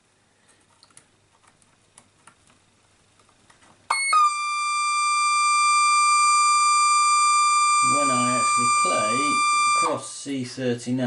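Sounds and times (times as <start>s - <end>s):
high electronic horn note: 3.9s - 10.0s.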